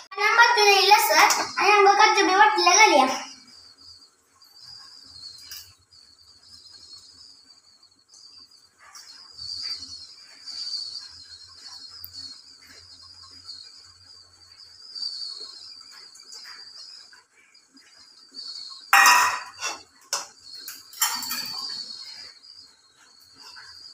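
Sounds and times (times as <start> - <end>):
insects chirring: 0.0 - 23.9
steel bowl scraping a pan: 19.0 - 21.9.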